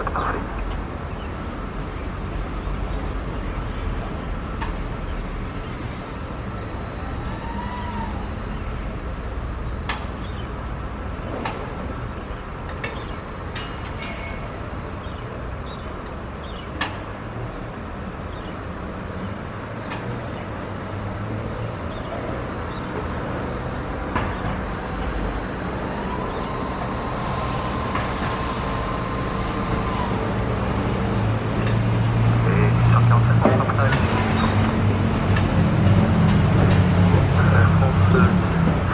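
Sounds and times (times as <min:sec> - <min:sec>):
distant jet engines: 0:00.0 - 0:38.9.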